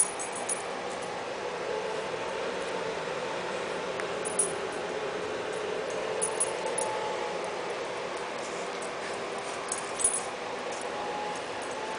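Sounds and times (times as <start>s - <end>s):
kittens playing clicks and clinks: 0.0s - 1.1s, 4.2s - 4.8s, 5.6s - 7.0s, 8.2s - 11.8s
steady background hum: 0.0s - 11.9s.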